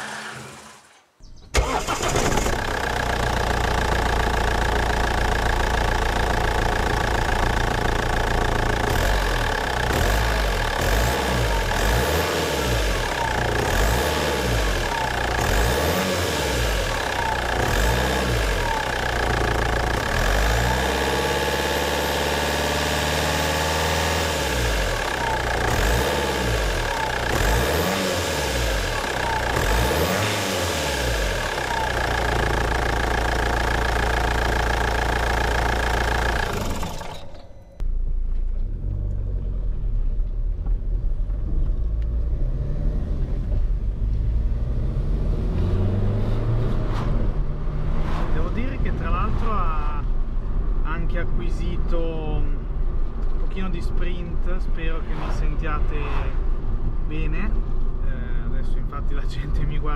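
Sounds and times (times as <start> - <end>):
engine revving: 0.0 - 4.8, 6.2 - 37.8, 42.1 - 49.6
diesel engine idling with clatter: 1.6 - 12.2, 12.8 - 42.0.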